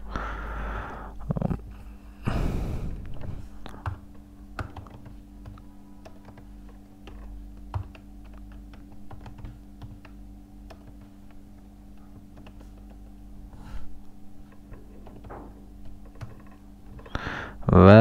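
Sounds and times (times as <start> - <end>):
steady low hum: 0.0 - 18.0
laptop keyboard typing: 3.1 - 13.3, 14.5 - 17.3.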